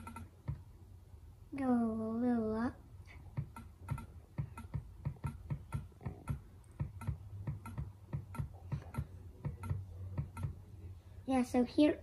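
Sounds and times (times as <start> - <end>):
rapid mouse clicks: 0.0 - 0.6, 3.1 - 10.6.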